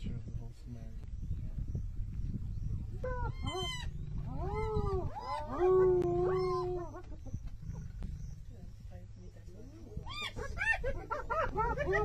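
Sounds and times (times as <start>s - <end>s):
low rumble: 0.0s - 12.0s
hyenas calling: 3.0s - 8.8s, 9.9s - 12.0s.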